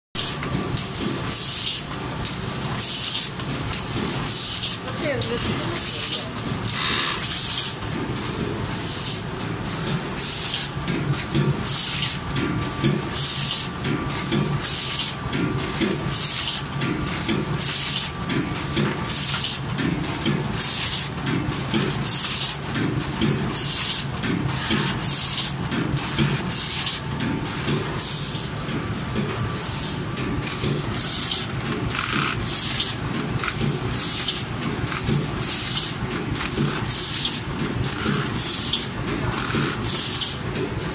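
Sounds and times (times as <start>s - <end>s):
pneumatic air hiss: 0.2s - 1.9s, 2.8s - 4.8s, 6.7s - 7.8s, 8.7s - 9.3s, 10.2s - 16.6s, 17.2s - 18.2s, 19.1s - 19.6s, 20.6s - 28.5s, 29.5s - 40.4s
machine rumble and clatter: 0.2s - 40.9s.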